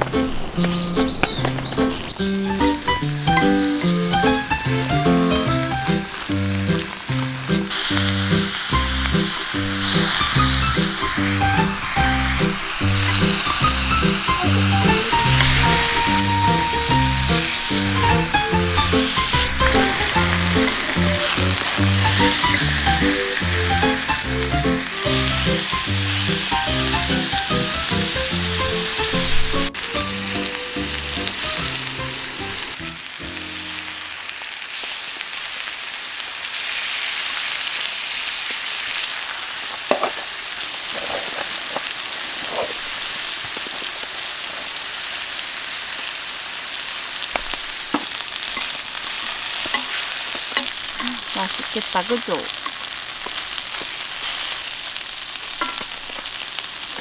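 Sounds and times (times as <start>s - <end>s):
background music: 0.0s - 34.1s
meat sizzling in a skillet: 0.0s - 57.0s.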